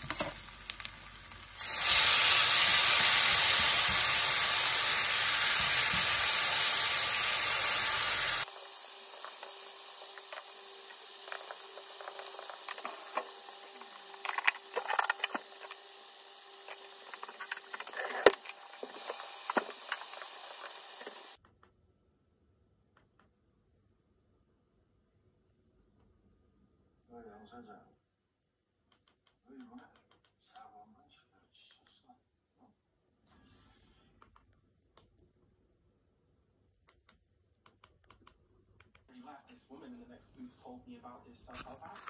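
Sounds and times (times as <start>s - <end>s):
food sizzling in frying pan: 0.0s - 21.4s.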